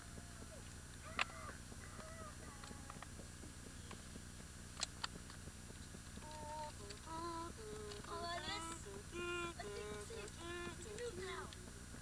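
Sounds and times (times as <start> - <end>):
steady low hum: 0.0 - 12.0
person humming a tune: 6.2 - 11.6.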